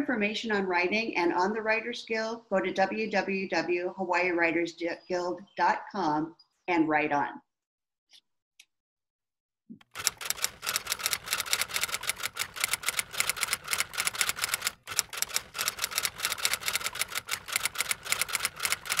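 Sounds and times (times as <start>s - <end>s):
rapid typing on keys: 9.8s - 19.0s.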